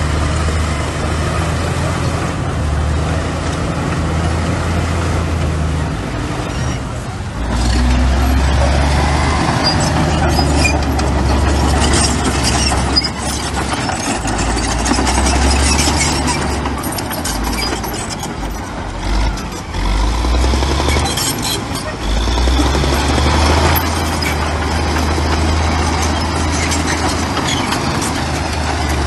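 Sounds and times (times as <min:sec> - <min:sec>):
diesel machinery engine drone: 0:00.0 - 0:29.0
metallic clanks and rattles: 0:09.6 - 0:19.8, 0:22.6 - 0:29.0.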